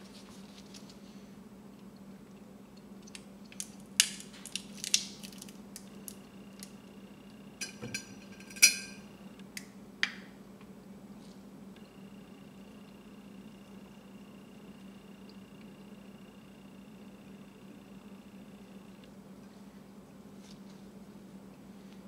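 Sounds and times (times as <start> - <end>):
low steady hum: 0.0 - 22.0
pliers and glassware clinking: 7.6 - 9.0
glassy ring: 7.6 - 9.1.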